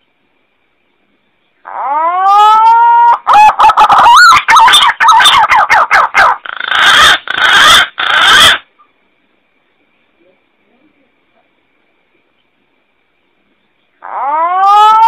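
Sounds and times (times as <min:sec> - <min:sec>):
pigeon whistling call: 0:01.8 - 0:08.6
harsh rasping bird notes: 0:03.3 - 0:08.7.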